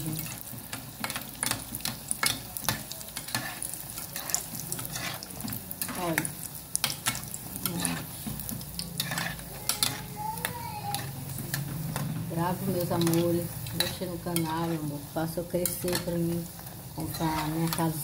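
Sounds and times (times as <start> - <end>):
dough sizzling in hot oil: 0.0 - 18.0
spoon scraping metal pot: 1.0 - 10.2.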